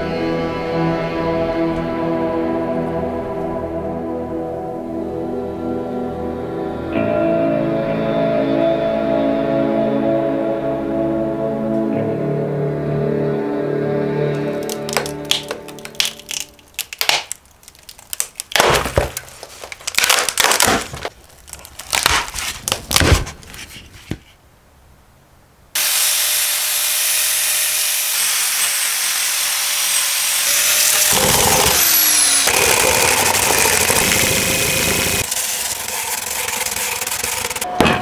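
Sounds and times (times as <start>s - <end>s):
crunching and cracking: 14.4s - 24.0s
angle grinder wire brush scouring: 30.8s - 37.7s.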